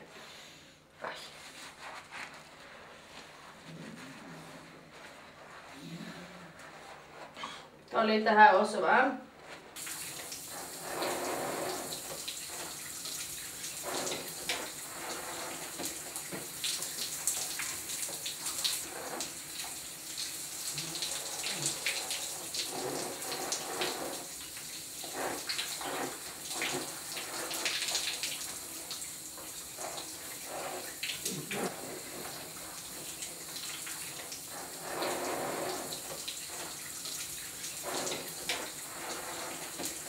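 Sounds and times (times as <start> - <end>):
shower water spraying: 9.7 - 40.0
water splashes and drips: 9.8 - 40.0.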